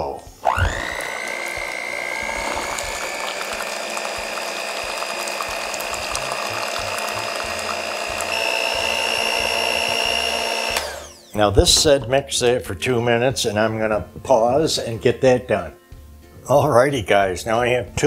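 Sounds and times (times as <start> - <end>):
electric hand mixer whine: 0.3 - 11.5.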